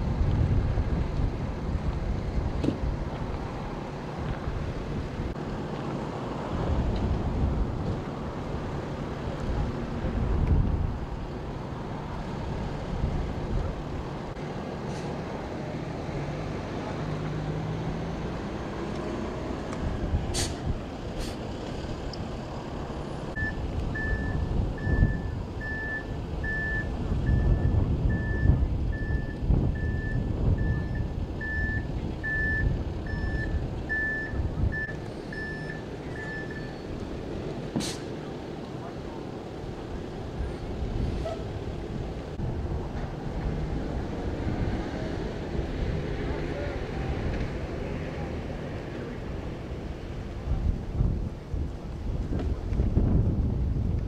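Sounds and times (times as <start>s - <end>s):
wind on the microphone: 0.0s - 5.4s, 6.4s - 14.3s, 23.4s - 35.0s, 48.8s - 54.0s
emergency vehicles idling: 0.0s - 52.8s
back-up alarm beeping: 23.4s - 36.8s.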